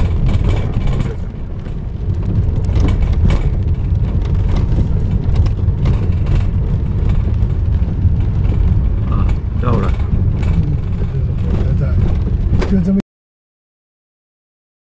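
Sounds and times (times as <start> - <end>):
car engine and tyres rumbling: 0.0 - 13.0.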